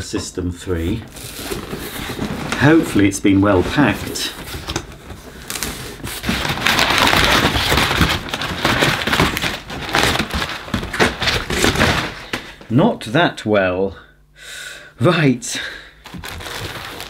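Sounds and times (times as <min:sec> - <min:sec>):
packing paper crinkling: 0:00.7 - 0:12.6, 0:16.0 - 0:17.0.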